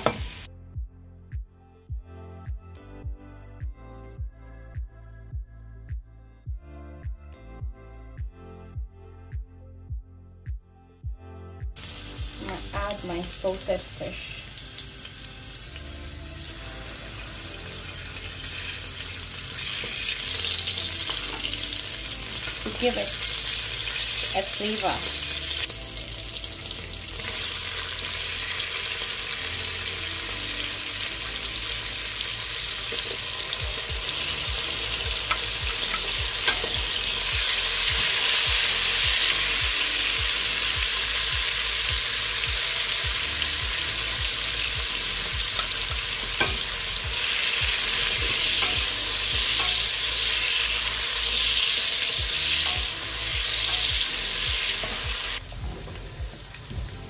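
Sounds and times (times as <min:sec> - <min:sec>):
stew sizzling and bubbling: 0:00.0 - 0:00.5, 0:11.8 - 0:57.0.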